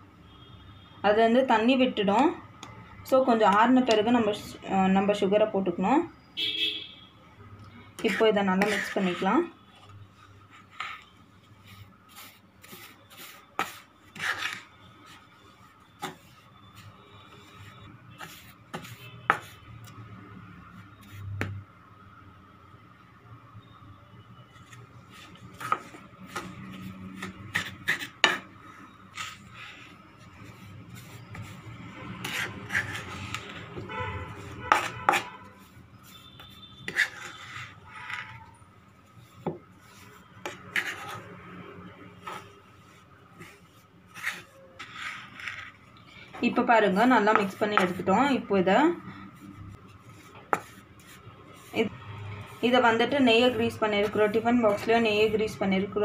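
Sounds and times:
spoon scraping dry mix: 8.0s - 20.0s, 24.5s - 55.6s.

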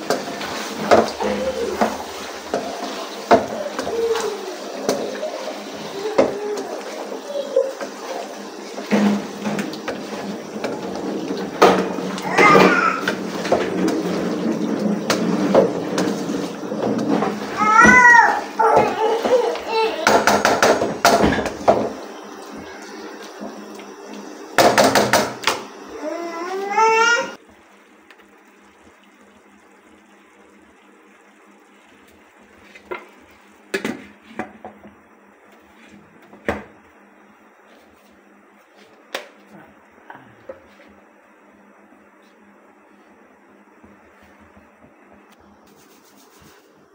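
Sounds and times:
wooden spatula scraping: 0.0s - 24.3s, 45.6s - 46.8s
food sizzling in a wok: 0.0s - 38.0s.

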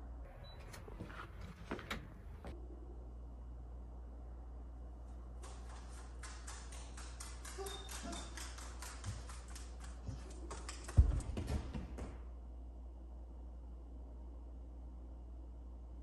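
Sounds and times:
dog claws clicking on floor: 5.4s - 11.7s.

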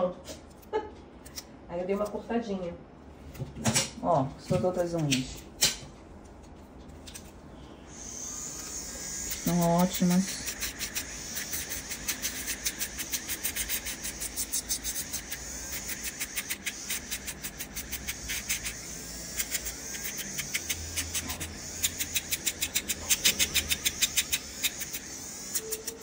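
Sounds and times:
nail drill rasping on toenails: 7.9s - 26.0s.

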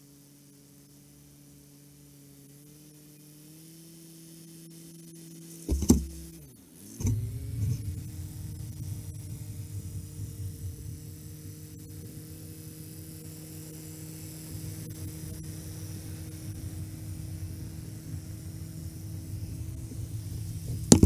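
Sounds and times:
loud knocks: 5.7s - 6.4s
tractor diesel engine running: 5.7s - 13.2s.

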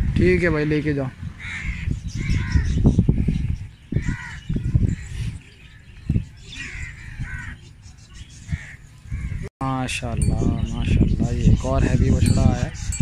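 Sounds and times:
crows cawing: 1.4s - 2.8s, 3.9s - 4.8s, 6.5s - 7.7s, 8.5s - 9.4s.

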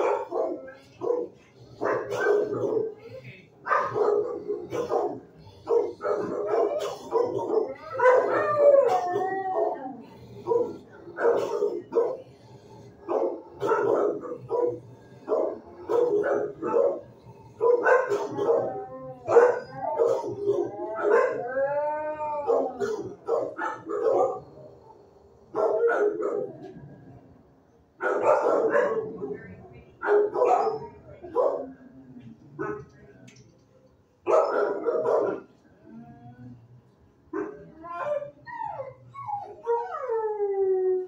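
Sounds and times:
dogs barking: 0.0s - 21.6s, 22.4s - 24.9s, 25.5s - 26.8s, 28.0s - 31.8s, 34.2s - 35.6s, 37.3s - 39.9s
dog howling: 5.5s - 12.0s, 13.0s - 24.5s, 37.6s - 41.0s.

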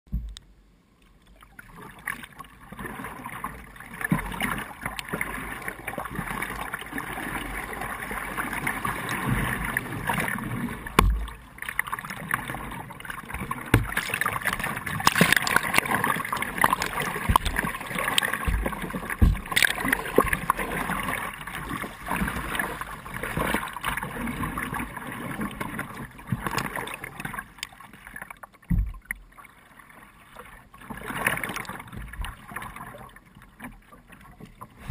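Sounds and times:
kayak paddle strokes splashing: 1.3s - 34.9s
river water rushing against hull: 1.4s - 34.9s
short low thumps: 16.8s - 17.9s, 18.5s - 19.7s.

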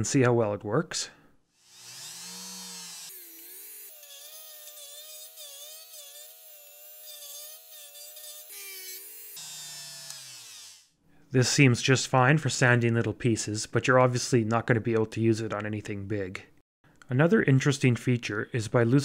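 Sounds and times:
rotary tool sanding wood: 1.6s - 10.9s.

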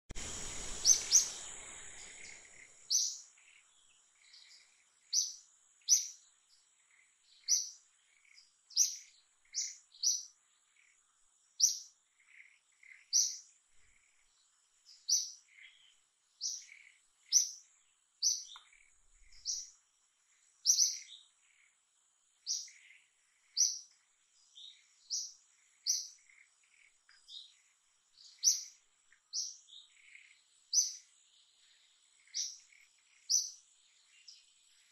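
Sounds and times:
burst of noise: 0.1s - 2.8s
faint high whine: 0.1s - 34.9s
bird chirping: 0.2s - 34.9s.

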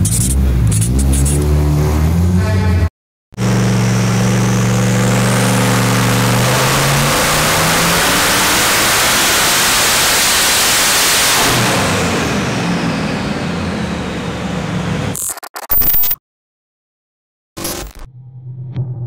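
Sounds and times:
engine droning loudly: 3.4s - 15.2s.

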